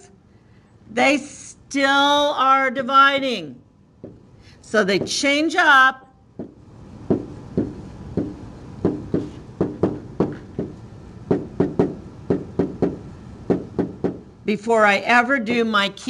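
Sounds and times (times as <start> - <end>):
pen tapping on whiteboard: 4.0 - 4.2, 6.4 - 14.2.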